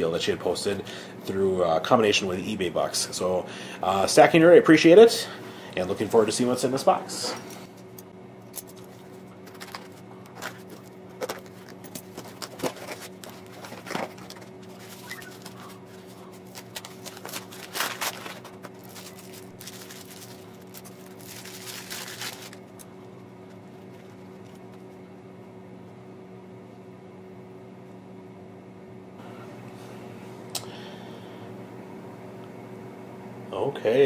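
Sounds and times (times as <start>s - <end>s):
steady low hum: 0.0s - 34.0s
cardboard rustling: 8.8s - 24.9s.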